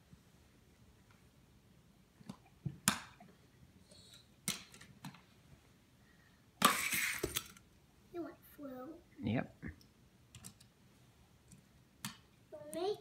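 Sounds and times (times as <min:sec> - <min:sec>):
toy cars clicking and knocking: 0:06.6 - 0:07.6
toys scraping and rattling: 0:06.7 - 0:07.6.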